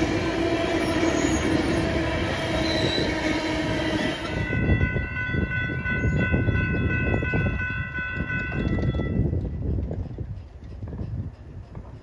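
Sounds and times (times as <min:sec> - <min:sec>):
crossing warning bells ringing: 0:00.0 - 0:09.7
train rumbling with wheel clicks: 0:00.0 - 0:12.0.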